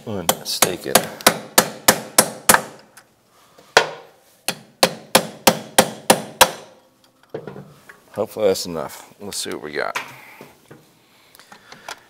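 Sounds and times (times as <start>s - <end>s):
hammer striking steel punch: 0.3s - 2.8s, 3.8s - 6.7s.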